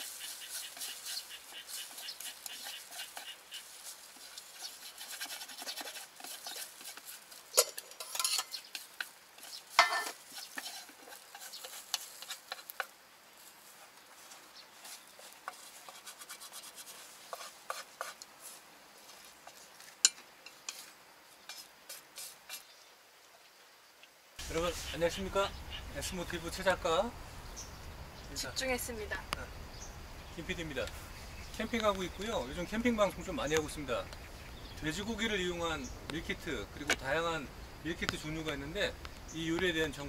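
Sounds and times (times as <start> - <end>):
utensils scraping a pan: 0.0 - 12.9, 14.8 - 18.2.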